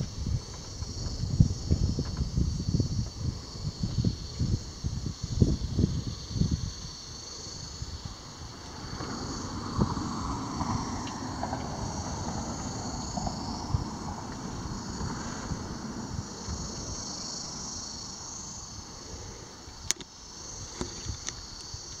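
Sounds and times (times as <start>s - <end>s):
wind on microphone: 0.0s - 19.9s
insect chorus drone: 0.0s - 22.0s
sharp clicks: 19.8s - 20.1s.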